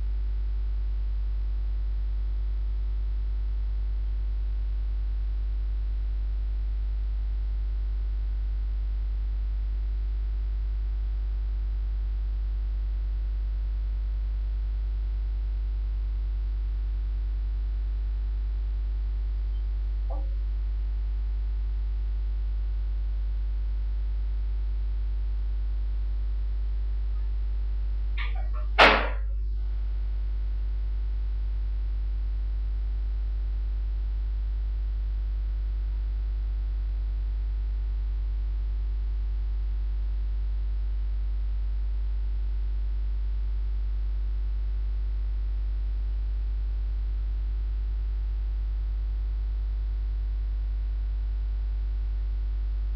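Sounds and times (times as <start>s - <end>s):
electrical mains hum: 0.0s - 52.9s
brief sharp sound: 28.2s - 29.3s.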